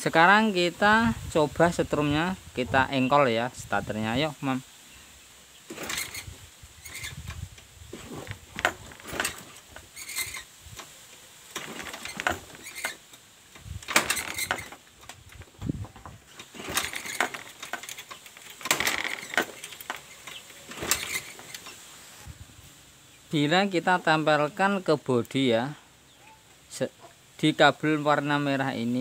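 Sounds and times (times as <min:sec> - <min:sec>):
wiring connectors clicking and rattling: 0:05.7 - 0:21.8.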